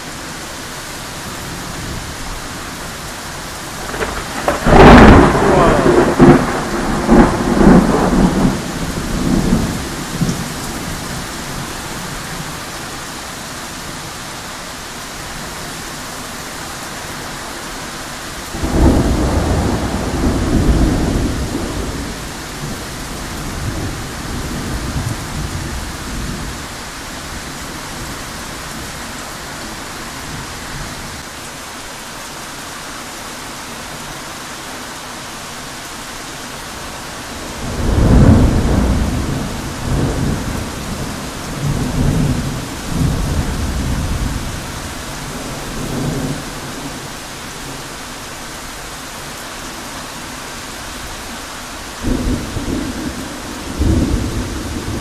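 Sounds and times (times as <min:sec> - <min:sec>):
heavy rain pouring: 0:00.0 - 0:55.0
thunder rolling: 0:03.8 - 0:11.0, 0:18.6 - 0:22.8, 0:37.5 - 0:44.6.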